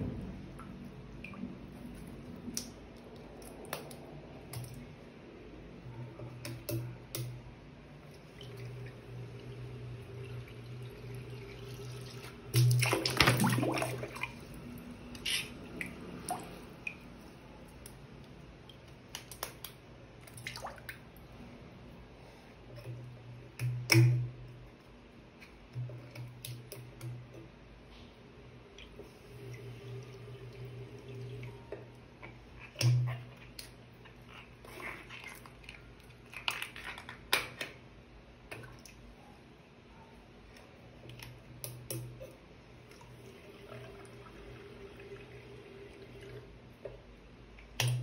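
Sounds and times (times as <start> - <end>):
water dripping: 0.3 - 5.0, 8.0 - 21.2, 22.8 - 24.5, 28.7 - 34.3, 47.6 - 48.0
water balloon splashing into basin: 12.2 - 14.6.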